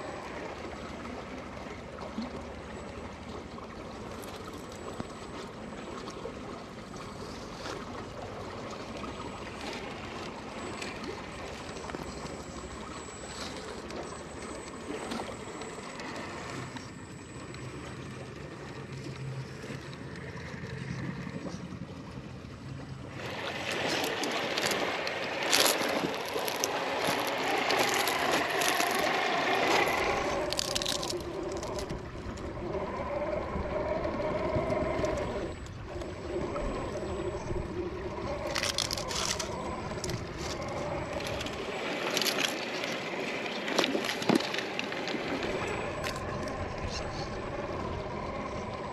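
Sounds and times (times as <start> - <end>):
river running: 0.0 - 48.9
rc crawler motor: 23.1 - 48.9
tyres clicking and scraping on rock: 23.2 - 32.0, 38.3 - 47.3.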